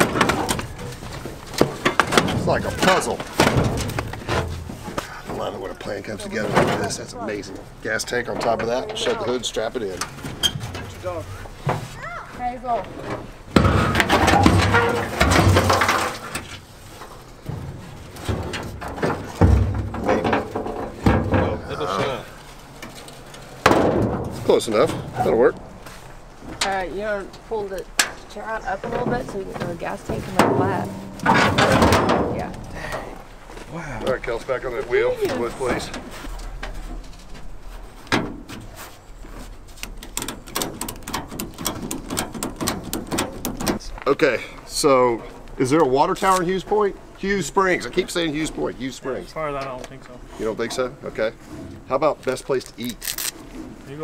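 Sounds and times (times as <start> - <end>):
metal scraping and knocking: 0.0 - 7.1, 13.0 - 22.1, 26.4 - 32.7, 35.3 - 43.9
ratchet strap clicking: 52.9 - 53.4.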